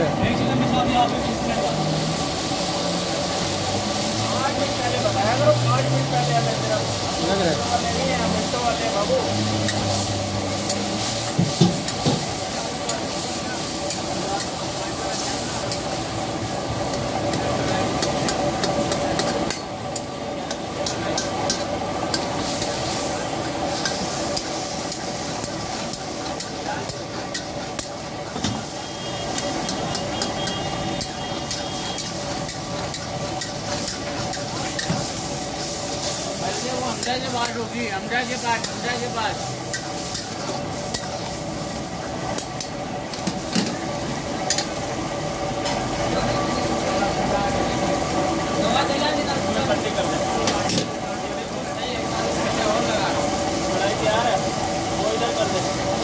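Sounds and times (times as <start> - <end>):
meat sizzling in a pan: 0.0 - 56.0.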